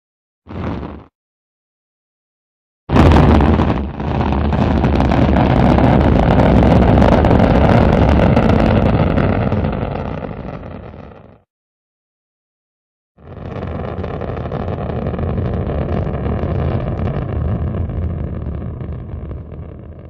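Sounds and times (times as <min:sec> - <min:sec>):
rocket engine rumble: 0:02.9 - 0:11.2, 0:13.2 - 0:20.0.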